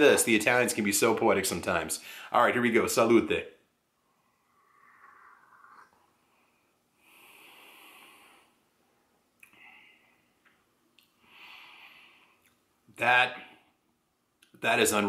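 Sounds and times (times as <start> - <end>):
man sipping coffee: 4.6 - 6.2.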